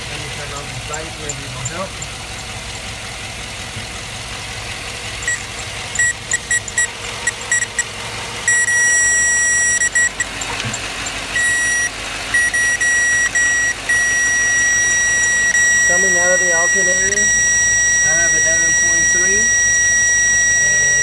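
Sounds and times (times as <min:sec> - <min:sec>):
circuit tester beeping: 0:05.2 - 0:21.0.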